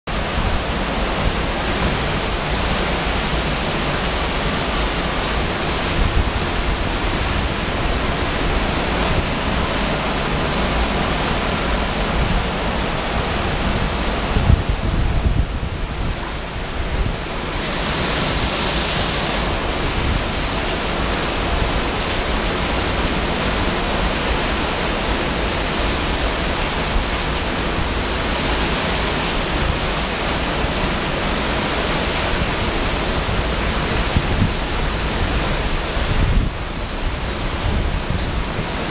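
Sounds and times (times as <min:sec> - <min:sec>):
driving rain: 0:00.1 - 0:38.9
hurricane wind rushing: 0:00.1 - 0:38.9
wind buffeting microphone: 0:00.1 - 0:38.9.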